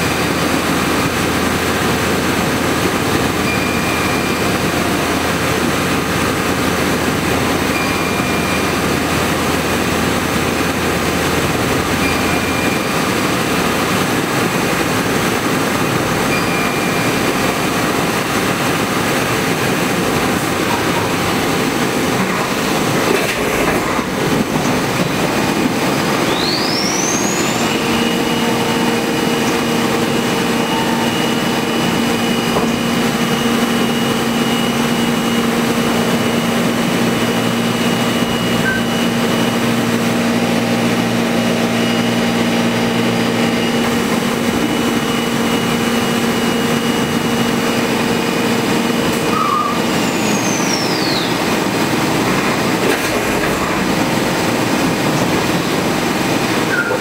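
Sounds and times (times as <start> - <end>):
milling spindle whine: 24.1 - 52.7.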